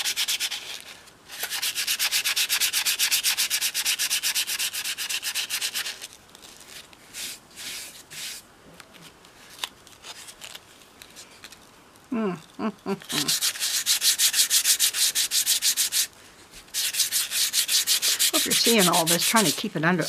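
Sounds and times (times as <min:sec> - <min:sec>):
sandpaper scratching: 0:00.0 - 0:08.4, 0:13.0 - 0:20.0
short hum-like vocal sound: 0:12.1 - 0:13.4.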